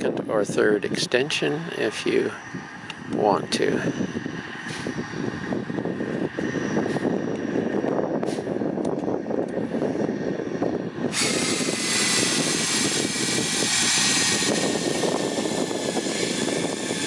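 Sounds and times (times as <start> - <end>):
drill motor whine: 11.1 - 17.0
rushing noise: 11.1 - 17.0.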